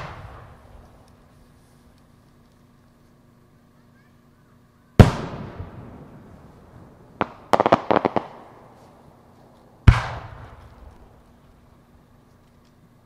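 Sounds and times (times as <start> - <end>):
firework booms: 0.0 - 1.0, 5.0 - 9.0, 9.8 - 11.1
firework sharp cracks: 0.0 - 2.4, 5.0 - 11.6.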